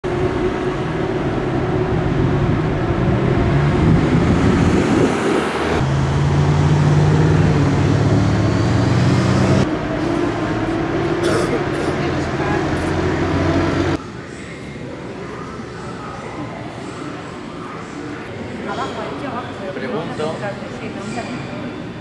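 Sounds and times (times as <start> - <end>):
cars driving past: 0.0 - 14.3
steady engine hum: 0.0 - 18.6.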